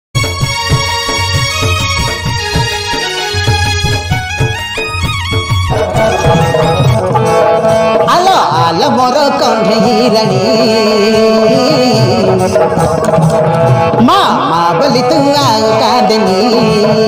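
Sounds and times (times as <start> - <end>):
tabla: 0.2 - 17.0
rising chime jingle: 5.7 - 7.4
drone-like tones: 5.7 - 8.0.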